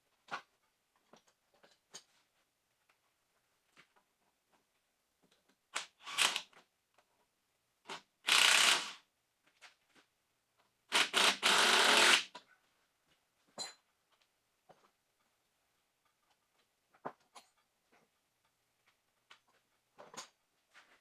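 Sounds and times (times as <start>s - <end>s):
air tool bursts: 8.2s - 9.0s, 10.9s - 12.3s.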